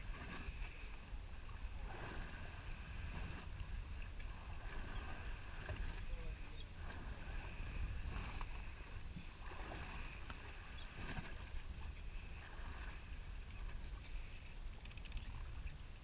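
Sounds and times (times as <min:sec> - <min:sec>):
faint water hiss: 0:00.0 - 0:16.0
wind rumble on microphone: 0:00.0 - 0:16.0
faint ticks: 0:14.0 - 0:15.8.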